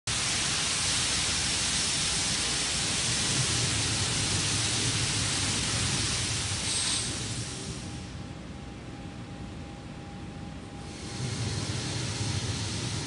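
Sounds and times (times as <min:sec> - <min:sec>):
loud gas venting hiss: 0:00.1 - 0:08.2, 0:10.8 - 0:13.0.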